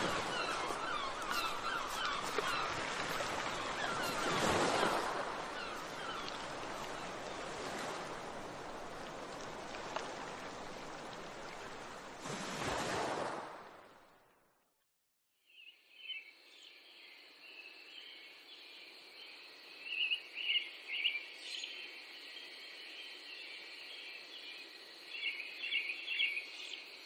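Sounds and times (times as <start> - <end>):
bird calls: 0.0 - 7.6
ocean waves breaking: 0.0 - 14.2.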